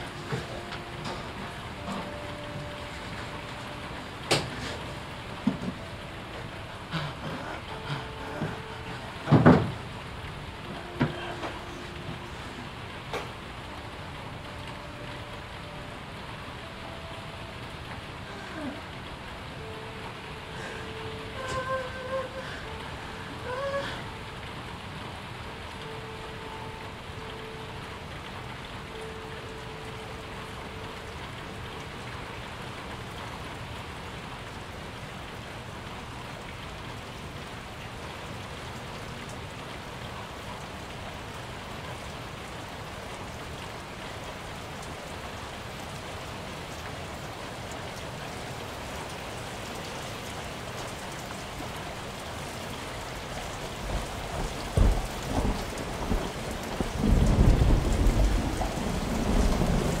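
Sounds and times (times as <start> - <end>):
steady rain: 0.0 - 60.0
low thunder rumbling: 53.1 - 60.0.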